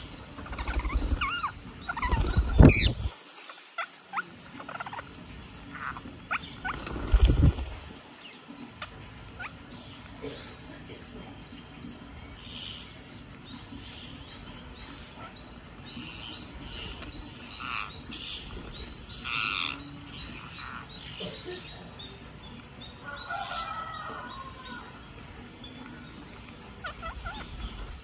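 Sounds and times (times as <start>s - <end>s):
parakeets squawking and chirping: 0.0s - 7.6s, 8.7s - 10.0s, 11.6s - 22.3s, 26.6s - 28.0s.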